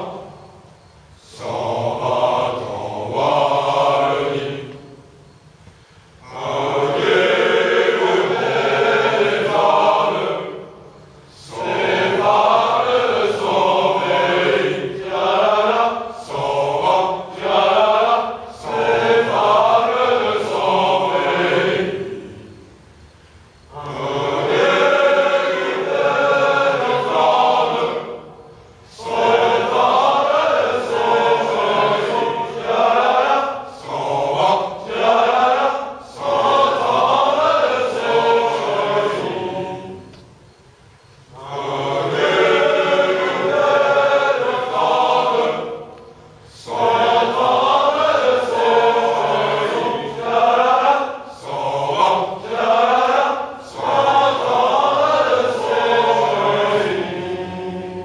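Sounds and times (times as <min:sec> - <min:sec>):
men singing in chorus: 0:01.2 - 0:05.0, 0:06.2 - 0:10.7, 0:11.3 - 0:22.4, 0:23.7 - 0:40.2, 0:41.3 - 0:58.0.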